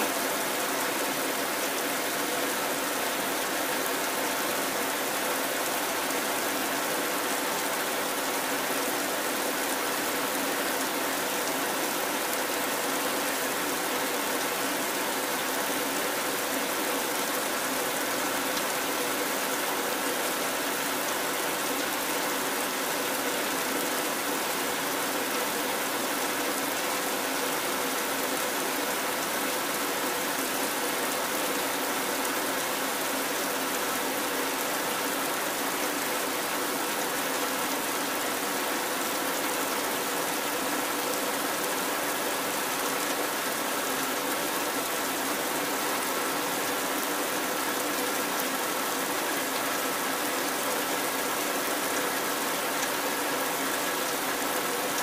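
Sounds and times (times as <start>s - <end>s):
heavy rain falling: 0.0s - 55.0s.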